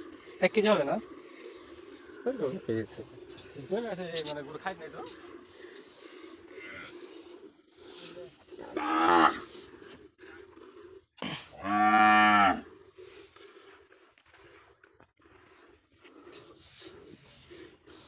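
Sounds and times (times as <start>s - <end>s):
cattle mooing: 8.6s - 9.5s, 11.6s - 12.6s.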